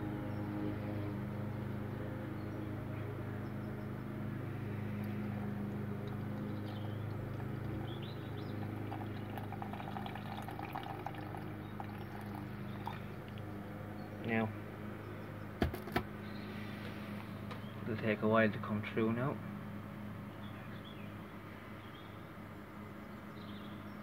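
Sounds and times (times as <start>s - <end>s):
low hum: 0.0s - 17.9s
liquid trickling onto filter paper: 5.9s - 13.5s.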